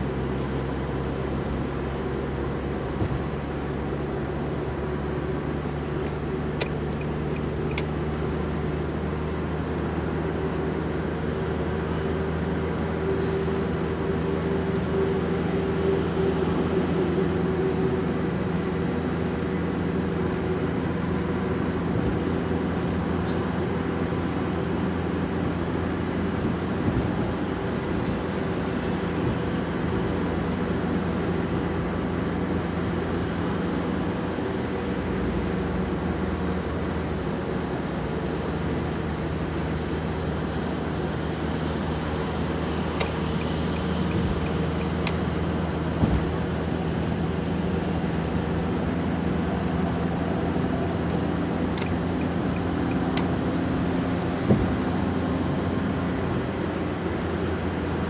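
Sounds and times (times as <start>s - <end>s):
road and engine drone in car: 0.0s - 58.0s.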